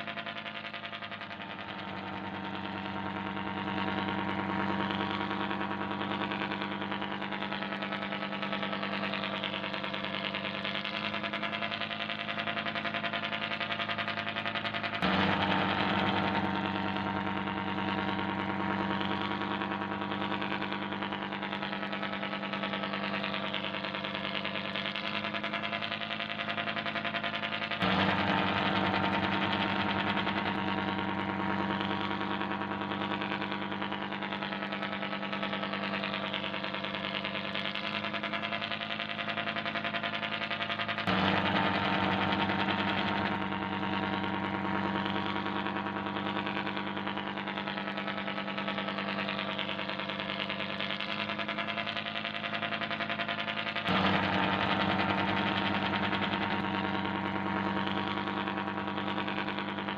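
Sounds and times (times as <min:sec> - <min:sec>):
ship engine drone: 0:00.0 - 0:59.9.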